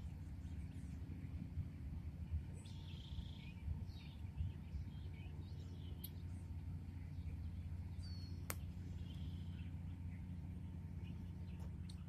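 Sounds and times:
low steady rumble: 0.0s - 12.0s
faint high bird chirps: 2.4s - 12.0s
sharp click: 8.4s - 8.7s.

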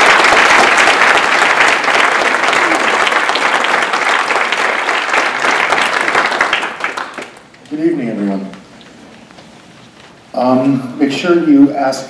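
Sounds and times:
large audience applauding: 0.0s - 7.7s.

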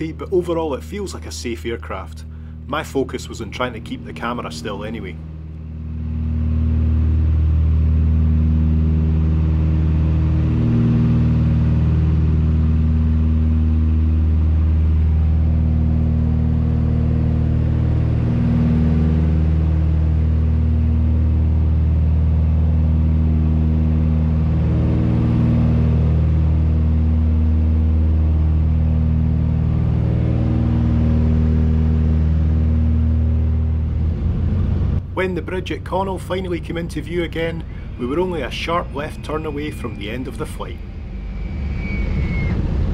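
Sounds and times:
aircraft engines droning in cabin: 0.0s - 42.9s.

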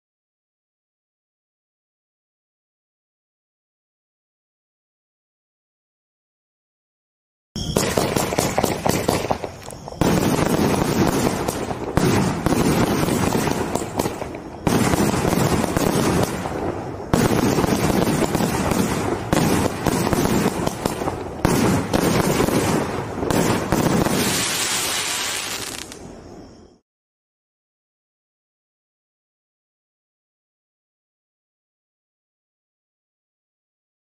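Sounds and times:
fireworks launching and bursting: 7.6s - 26.4s
fireworks crackling: 7.7s - 26.2s
fireworks hissing sizzle: 7.8s - 26.6s.

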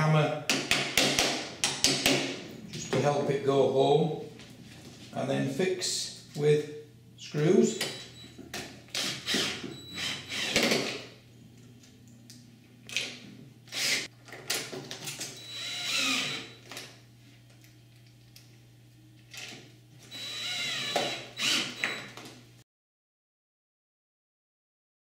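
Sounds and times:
cordless drill driving screws: 8.9s - 11.0s, 13.7s - 14.1s, 15.4s - 16.6s, 20.0s - 22.0s.

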